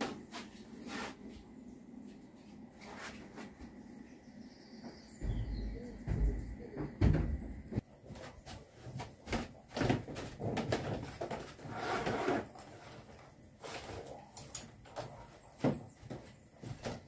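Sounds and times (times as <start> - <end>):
rustling scrape: 0.0 - 1.3, 11.0 - 14.2
heavy low thump: 5.2 - 7.8.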